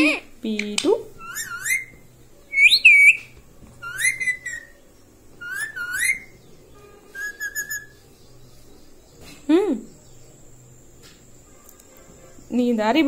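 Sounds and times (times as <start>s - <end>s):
parakeet chirping: 1.1s - 3.2s, 3.8s - 8.7s
parakeet whistled calls: 1.2s - 4.8s, 5.4s - 6.4s, 7.0s - 8.0s.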